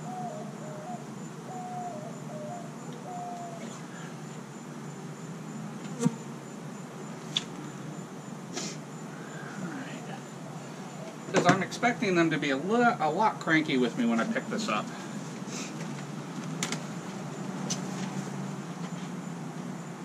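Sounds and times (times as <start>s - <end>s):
honeybees buzzing: 0.0s - 20.0s.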